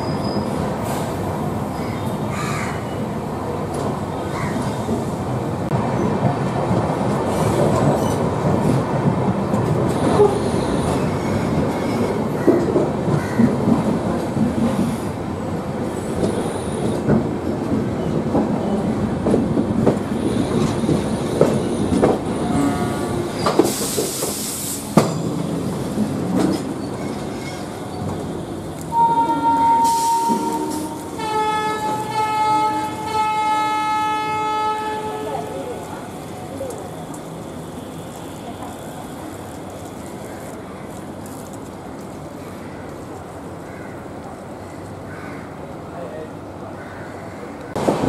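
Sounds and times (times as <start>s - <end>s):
train wheels clicking over rail joints: 23.3s - 28.9s
air brake hiss: 23.6s - 25.0s, 29.8s - 31.0s.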